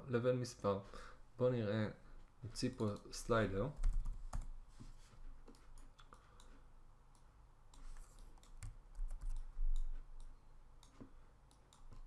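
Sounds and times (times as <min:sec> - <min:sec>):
computer keyboard typing: 0:03.7 - 0:04.6, 0:07.8 - 0:10.0.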